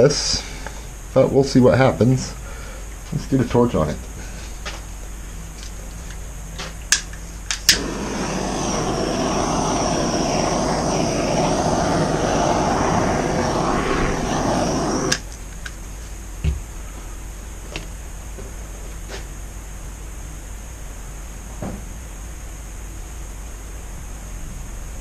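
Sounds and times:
torch clicks: 6.9s - 15.8s
torch flame roaring: 7.6s - 15.4s.

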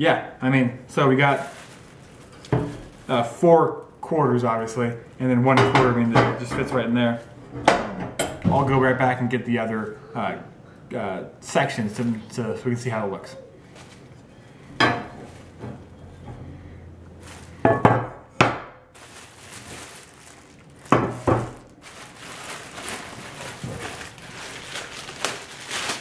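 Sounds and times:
plastic wrapping crinkling: 0.9s - 6.1s, 13.5s - 16.2s, 17.0s - 18.0s, 18.9s - 26.0s.

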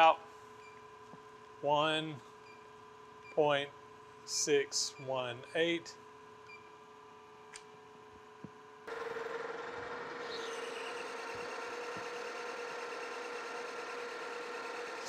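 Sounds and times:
shop hum: 0.0s - 15.0s
metal lathe running: 8.9s - 15.0s.

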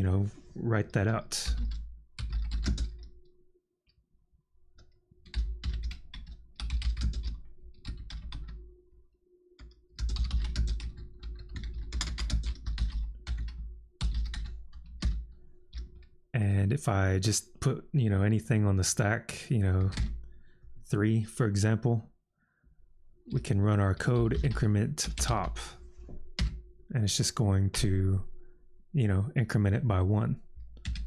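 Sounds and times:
typing on a computer keyboard: 1.5s - 3.2s, 4.8s - 8.6s, 9.6s - 16.1s, 19.8s - 20.2s, 26.4s - 26.6s, 30.6s - 31.0s.

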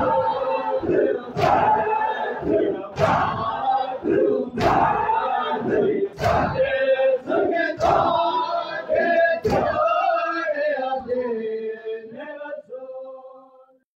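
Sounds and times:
crowd of men chanting: 0.0s - 13.1s
chest beating slaps: 1.3s - 6.8s, 7.8s - 8.3s, 9.4s - 10.0s.

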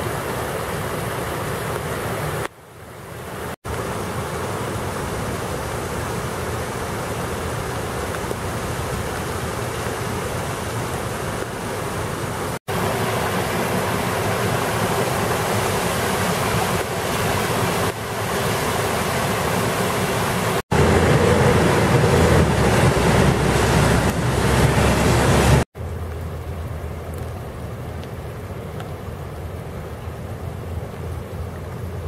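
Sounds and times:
floodwater rushing: 0.0s - 32.0s
storm water gushing from pipe: 0.0s - 32.0s
moving vehicle rumble: 20.7s - 28.3s.

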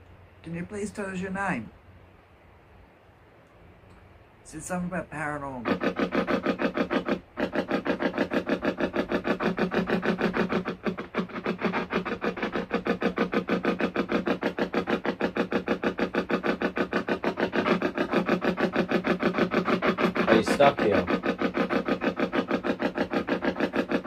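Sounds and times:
rapid bursts of radio static: 4.5s - 24.0s.

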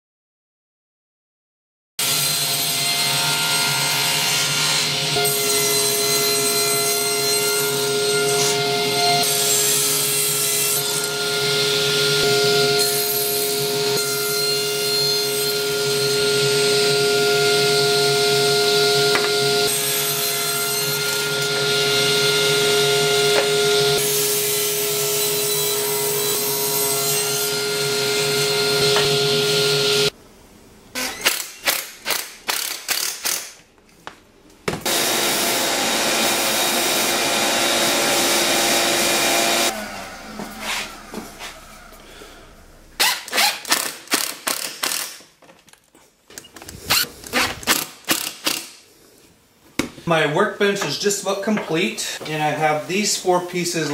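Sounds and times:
saw blade cutting wood: 2.0s - 30.1s, 34.8s - 42.4s, 43.0s - 45.2s
table saw running: 2.0s - 30.2s, 34.8s - 43.6s.

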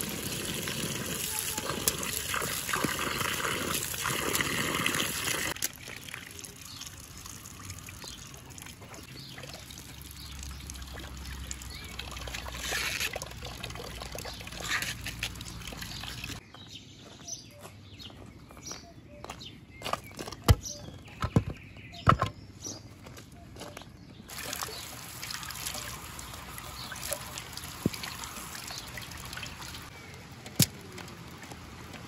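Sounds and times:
water running and splashing: 0.0s - 16.4s, 24.3s - 32.0s.

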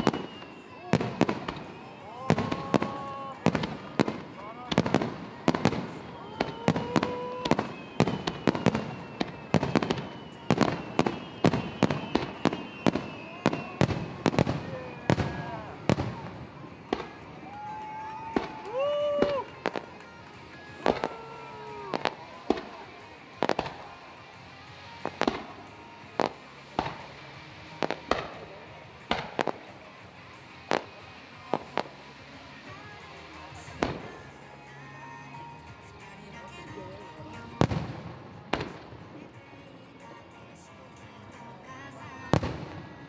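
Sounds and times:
steady whistling tone: 0.0s - 27.2s
fireworks bangs: 0.0s - 40.2s, 41.8s - 43.0s.

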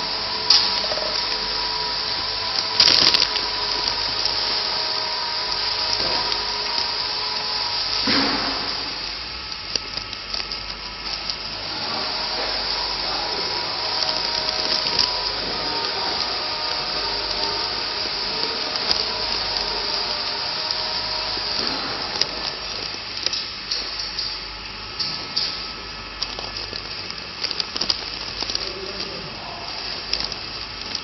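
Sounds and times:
plastic bag crinkling: 0.0s - 31.0s
steady whirring noise: 0.0s - 31.0s.

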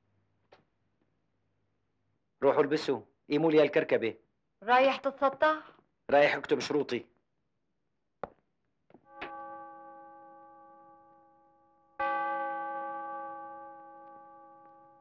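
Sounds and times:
clock striking chime: 9.1s - 15.0s.

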